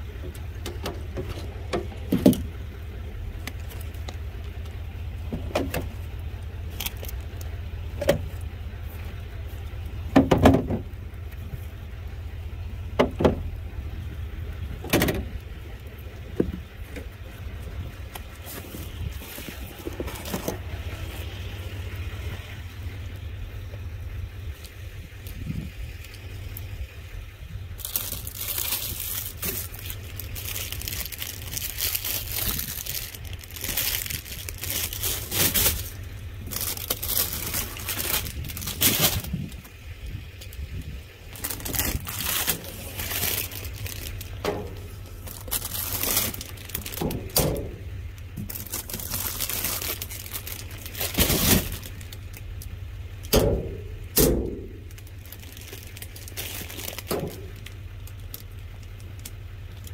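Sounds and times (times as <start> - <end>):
low hum: 0.0 - 59.9
plastic bags and cardboard rustling: 16.2 - 21.6, 27.7 - 39.7, 40.4 - 52.5, 53.2 - 59.9.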